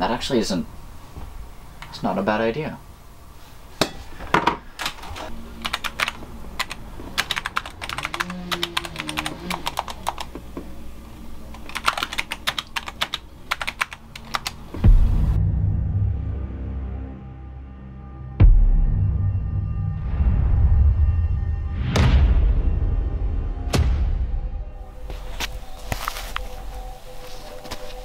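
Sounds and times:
typing on a keyboard: 5.6 - 10.3, 11.5 - 14.6.

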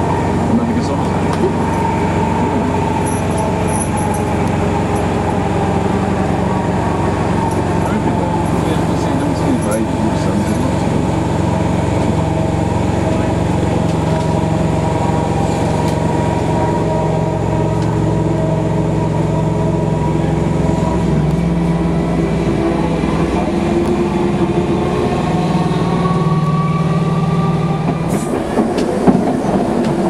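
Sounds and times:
train motors humming: 0.0 - 30.0
wheel and rail running noise: 0.0 - 30.0.

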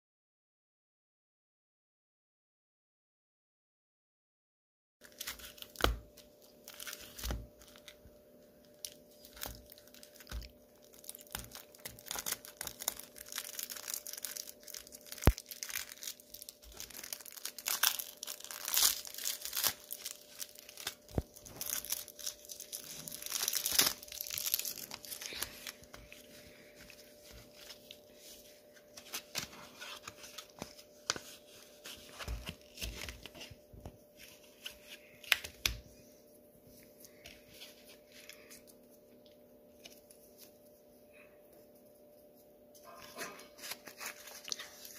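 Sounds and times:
cellophane crinkling and tearing: 5.0 - 35.8, 42.8 - 44.9.

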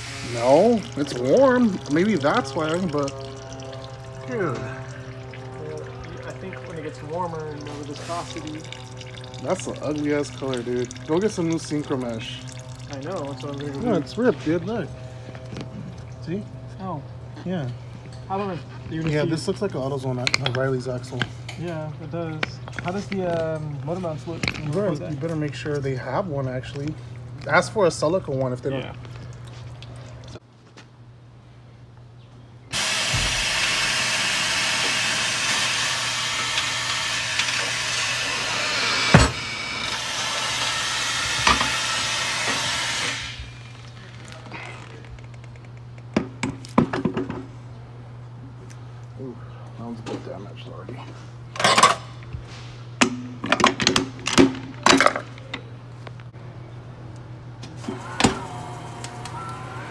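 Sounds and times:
compressed air hissing: 0.0 - 0.5, 32.7 - 43.6
steady low hum: 0.0 - 59.9.

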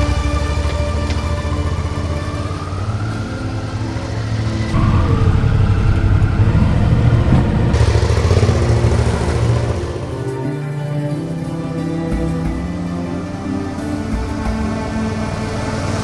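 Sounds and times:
motorcycles accelerating past: 0.0 - 11.0.

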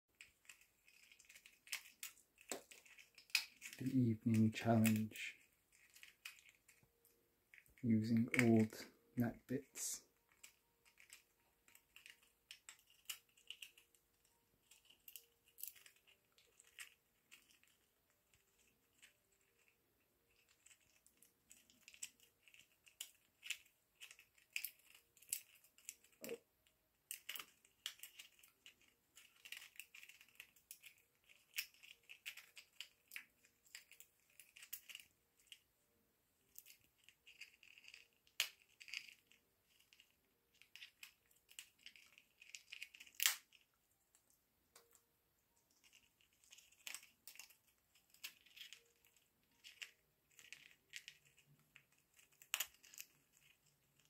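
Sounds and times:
parrot beak snipping and clicking: 43.1 - 43.4.

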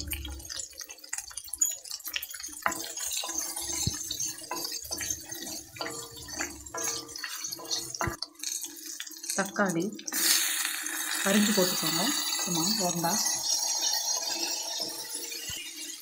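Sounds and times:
spices sizzling in hot oil: 0.0 - 16.0
wooden spatula scraping pan: 1.4 - 8.6.

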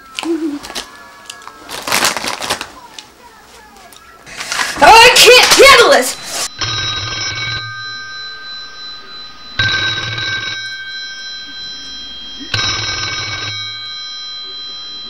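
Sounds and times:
telephone ringing: 4.3 - 15.0.

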